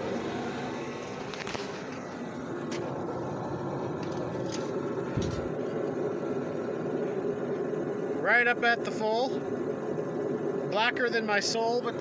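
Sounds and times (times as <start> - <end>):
steady background rumble: 0.0 - 12.0.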